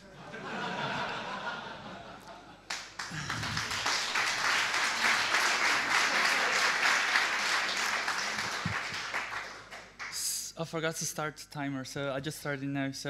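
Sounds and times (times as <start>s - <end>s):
audience applauding: 2.7s - 10.2s.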